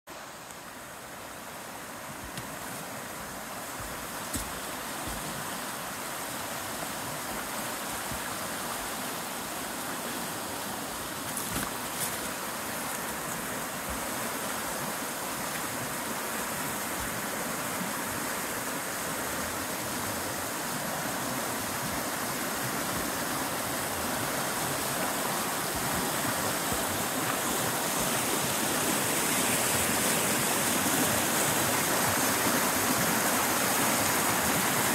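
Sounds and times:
creek water rushing: 0.1 - 34.9.

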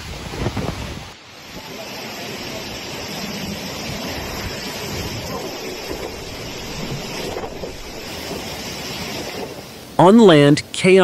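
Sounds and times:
jet engines of landing airliner: 0.0 - 10.0
wind buffeting microphone: 2.7 - 10.0.

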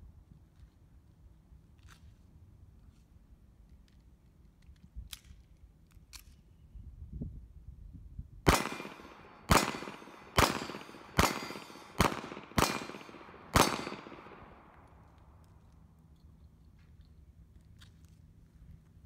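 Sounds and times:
handgun shots with echo: 8.5 - 15.0.

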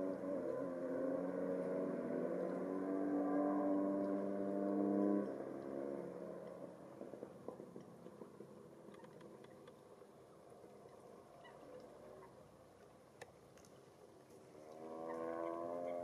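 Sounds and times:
faint background noise: 0.0 - 16.0
small clicks: 7.4 - 10.1, 12.7 - 15.6
swamphen calling: 10.8 - 12.5, 15.0 - 16.0.

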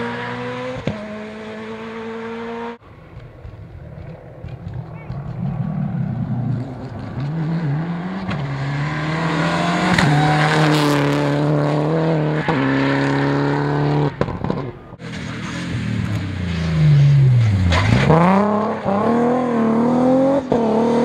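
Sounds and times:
rally car engine at full throttle: 0.0 - 21.0
exhaust cracks: 2.8 - 8.5.

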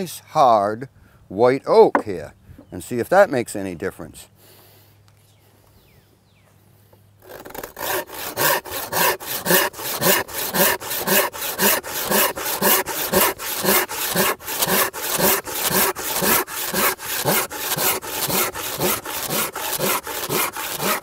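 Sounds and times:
handsaw cutting wood: 7.2 - 21.0.

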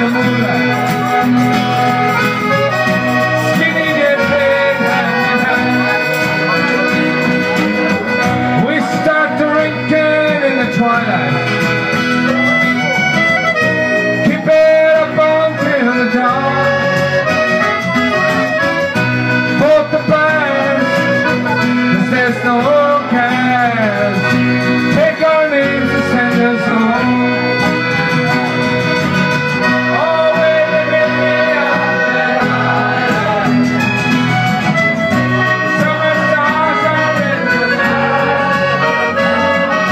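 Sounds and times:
acoustic and electric guitars: 0.0 - 39.9
button accordion: 0.0 - 39.9
person singing: 2.1 - 11.4, 29.6 - 34.8, 35.4 - 39.9.

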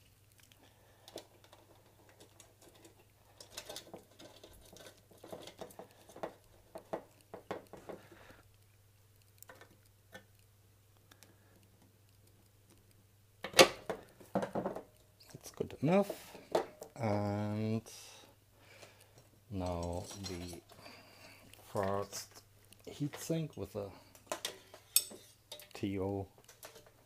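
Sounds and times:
fingers clicking and scraping: 0.2 - 13.0.

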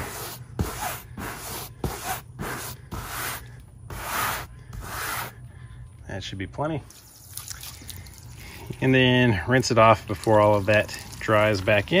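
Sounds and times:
brush scrubbing wet cloth: 0.0 - 5.4, 9.5 - 12.0.

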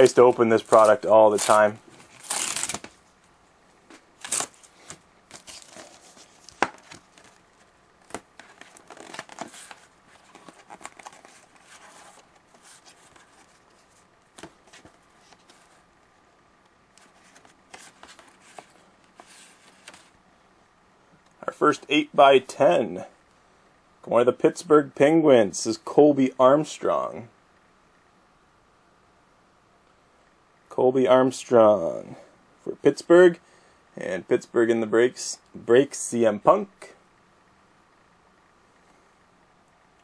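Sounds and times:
wrapper crinkling: 0.6 - 2.9, 8.1 - 13.7
card pack wrapper tearing: 0.6 - 3.0, 4.2 - 7.4, 8.1 - 13.4.

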